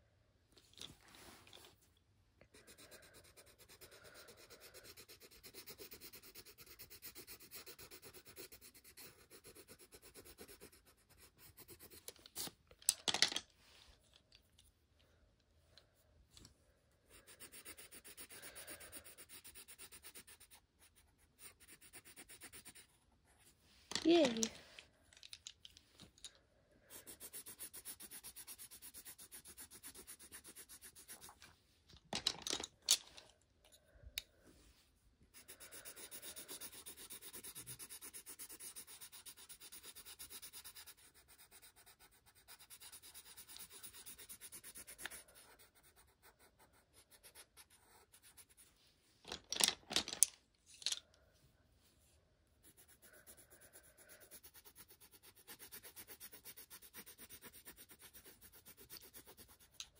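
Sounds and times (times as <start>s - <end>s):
pencil shading on paper: 2.4s - 12.5s, 17.0s - 24.5s, 26.8s - 31.4s, 35.3s - 48.8s, 52.6s - 59.9s.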